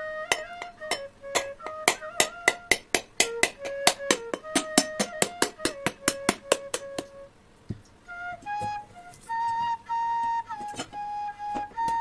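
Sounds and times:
soft flute music: 0.0 - 12.0
knife knocking coconut shell: 0.3 - 7.1.

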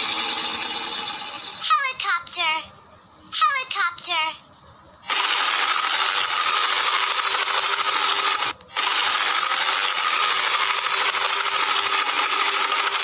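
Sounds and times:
helicopter rotor and engine rattling: 0.0 - 2.0, 5.1 - 13.0.

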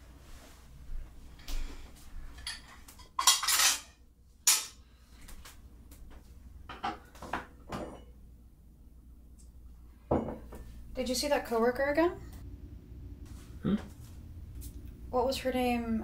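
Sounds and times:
dishes and glassware clinking: 2.4 - 4.8, 6.7 - 8.2, 10.1 - 10.7.

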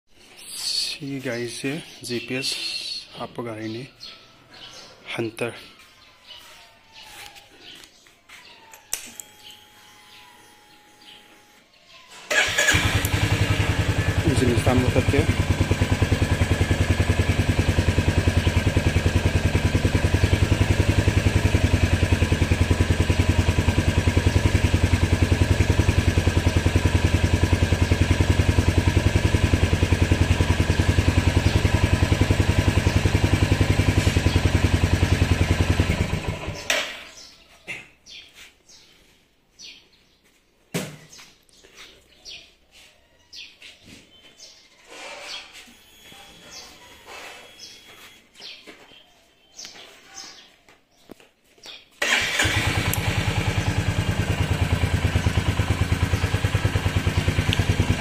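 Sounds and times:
motorcycle engine idling: 12.3 - 36.7, 52.0 - 58.0
faint bird chirps: 41.5 - 51.8.

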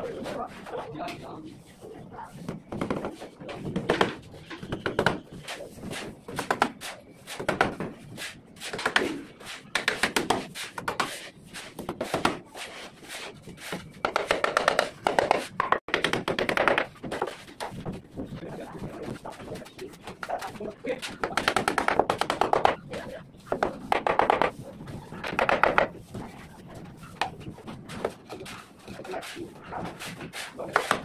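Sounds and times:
hammer tapping on concrete: 14.0 - 17.3, 20.1 - 24.5, 25.2 - 25.9.

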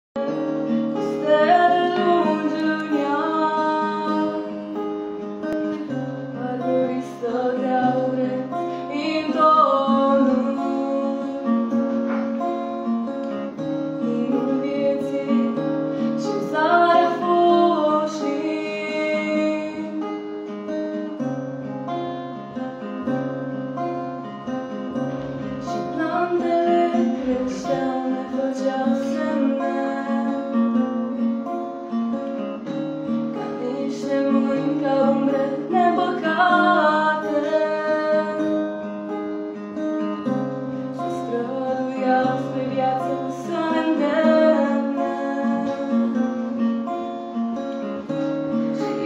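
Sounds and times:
acoustic guitar chords: 0.2 - 49.0.

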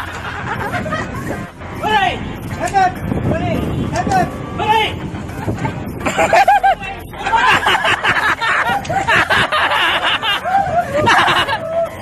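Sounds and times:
group laughing and shrieking: 0.0 - 1.5, 5.3 - 12.0.

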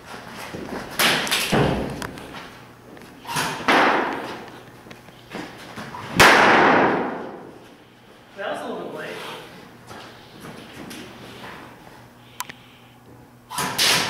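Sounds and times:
airsoft gun cracks echoing in hall: 6.2 - 7.6.

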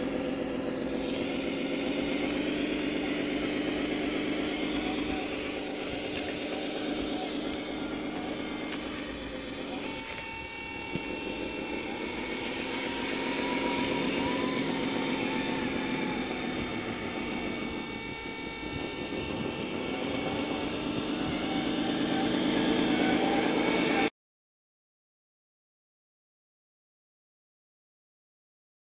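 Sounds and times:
high motor whine: 0.0 - 24.1
toy truck mechanical drone: 0.0 - 24.1.

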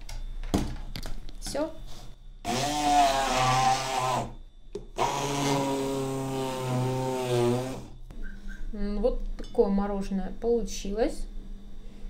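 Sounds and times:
electric blender motor: 2.5 - 4.4, 5.0 - 8.0.

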